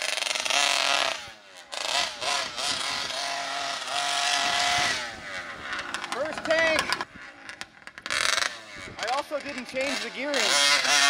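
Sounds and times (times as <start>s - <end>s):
two-stroke engine revving: 0.0s - 11.0s.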